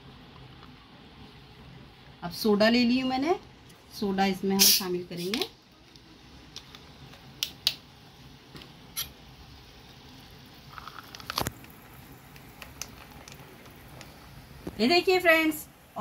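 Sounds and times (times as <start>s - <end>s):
soda water pouring: 10.4s - 14.6s
drink fizzing: 10.5s - 14.7s.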